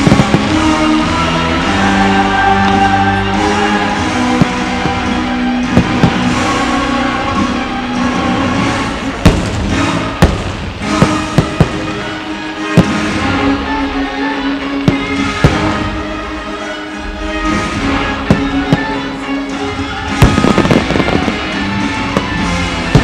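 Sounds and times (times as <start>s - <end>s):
sharp firework bangs: 0.0s - 1.0s, 4.0s - 6.6s, 9.2s - 13.2s, 19.8s - 23.0s
music with sustained tones: 0.0s - 23.0s.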